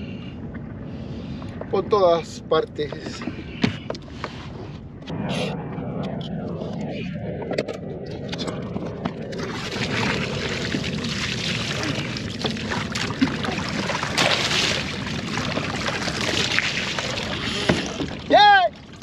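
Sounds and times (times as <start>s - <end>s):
wind on microphone: 0.0s - 19.0s
water lapping against kayak hull: 9.0s - 19.0s.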